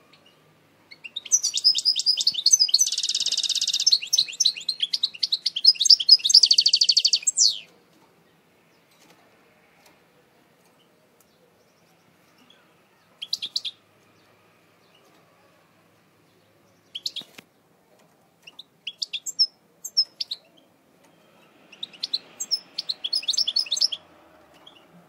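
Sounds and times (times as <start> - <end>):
goldfinch singing: 0.1 - 7.7, 18.5 - 20.7, 21.7 - 24.9.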